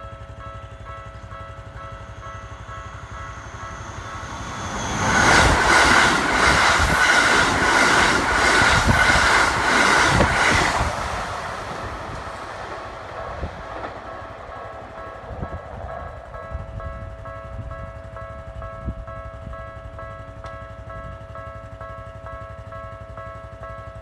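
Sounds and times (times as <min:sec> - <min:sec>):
train passing close: 0:00.0 - 0:24.0
wheels clacking over rail joints: 0:00.7 - 0:16.4.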